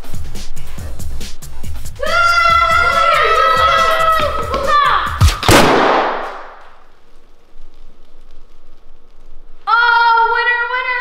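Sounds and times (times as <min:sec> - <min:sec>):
balloon popping bang: 0:04.5 - 0:06.7.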